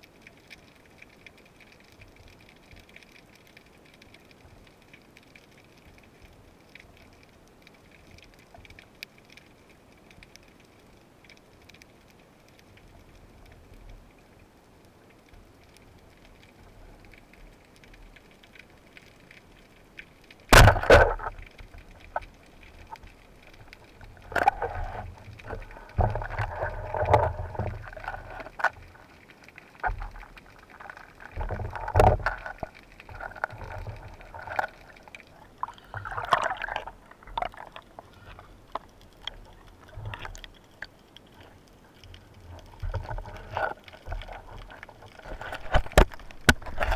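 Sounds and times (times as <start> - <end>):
underwater splashing and bubbling: 0.0 - 46.9
water rushing over camera: 0.0 - 46.9
speargun firing underwater: 20.5 - 21.3.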